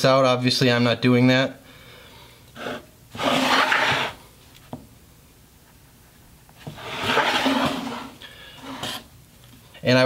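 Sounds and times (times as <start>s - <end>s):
pencil marking on wood: 2.6s - 4.2s, 6.7s - 9.1s
wooden board scraping on metal: 2.6s - 4.2s, 6.7s - 9.1s.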